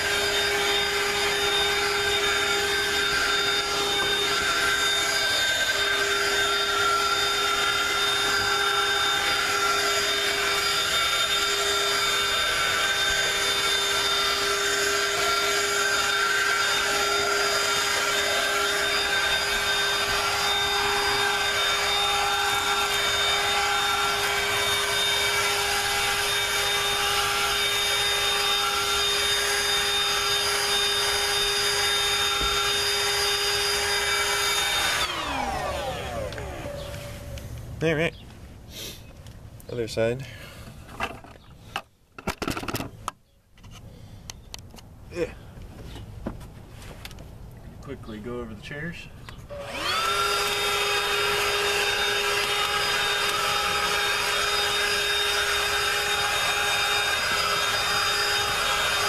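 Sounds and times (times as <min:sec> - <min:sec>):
handheld vacuum running: 0:00.0 - 0:37.6, 0:49.5 - 0:59.0.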